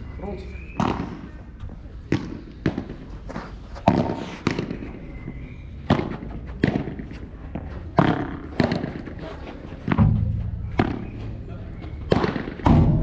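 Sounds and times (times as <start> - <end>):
ball bouncing on court: 3.8 - 9.2, 9.8 - 13.0
ball struck with paddles: 3.8 - 9.2, 9.8 - 13.0.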